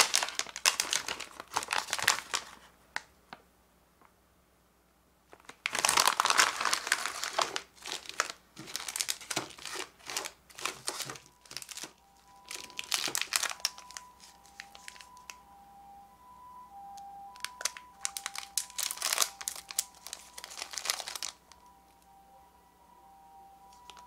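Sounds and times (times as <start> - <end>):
plastic wrappers crinkling: 0.0 - 3.1, 5.3 - 15.4, 17.4 - 21.7, 23.7 - 24.0.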